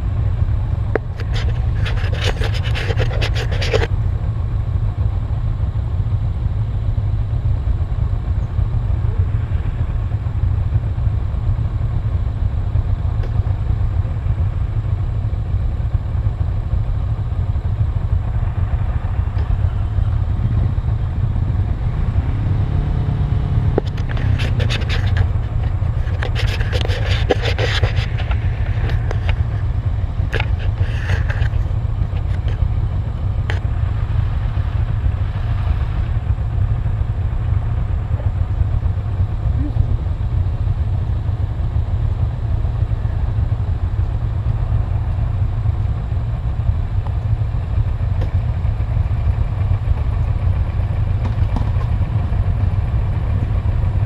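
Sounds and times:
motorcycle engines idling: 0.0 - 54.0
sharp clicks and rustles: 0.9 - 4.0, 23.6 - 34.4.

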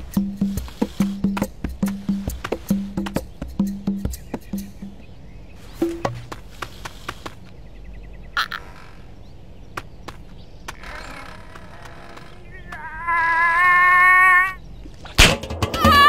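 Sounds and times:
wavering cartoon vocal sound: 12.5 - 14.6.

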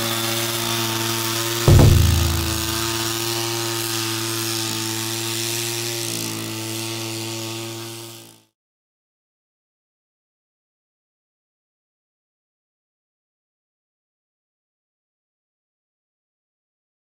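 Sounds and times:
heavy thump: 1.7 - 3.0.

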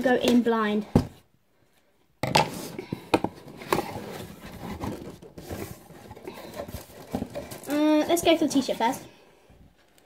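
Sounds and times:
cardboard flaps scraping: 3.5 - 7.7.

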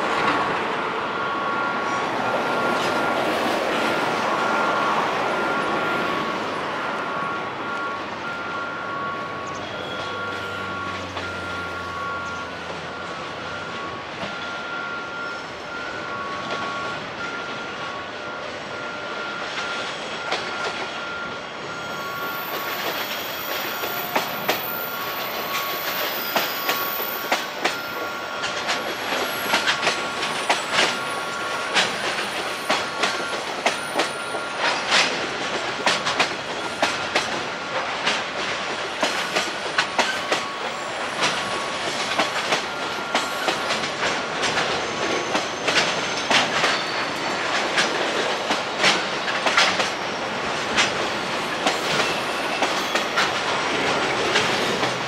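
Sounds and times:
train wheels rumbling on rails: 0.0 - 55.0
high wheel squeal: 1.2 - 17.8, 18.4 - 35.2, 39.2 - 47.6, 51.6 - 55.0
wheels clacking over rail joints: 21.9 - 55.0.

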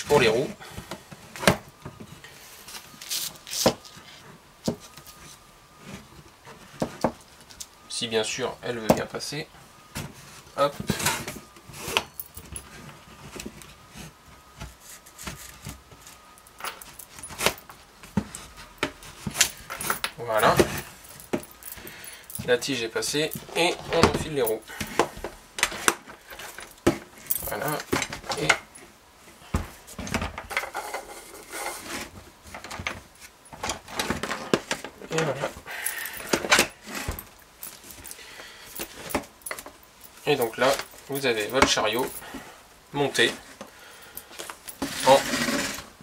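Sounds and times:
knocks clicks and scrapes of handling: 23.3 - 42.3
metal scraping on plastic pipe: 30.5 - 32.2, 44.8 - 46.0.

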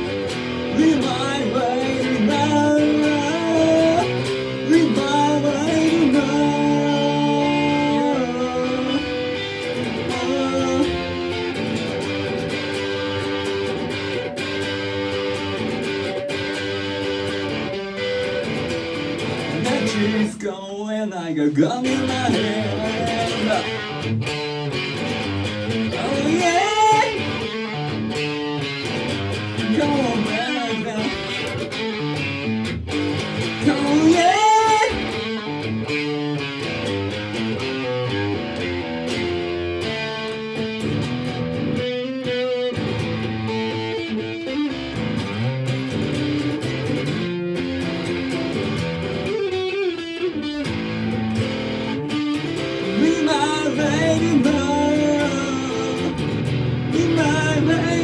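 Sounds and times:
electric guitar: 0.0 - 58.0
man singing: 0.6 - 11.7, 19.5 - 24.1, 25.6 - 27.8, 29.5 - 31.7, 33.4 - 35.6, 52.8 - 58.0.

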